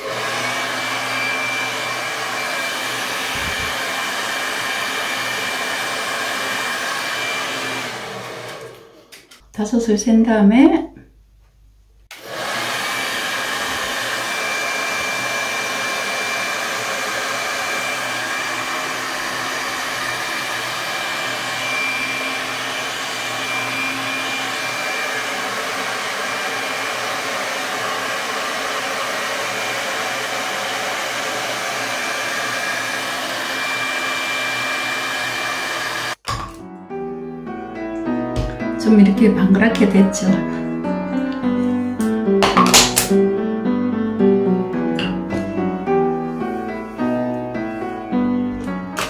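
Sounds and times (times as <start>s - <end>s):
hair dryer blowing with high whine: 0.0s - 9.4s, 12.1s - 36.6s, 38.4s - 43.1s.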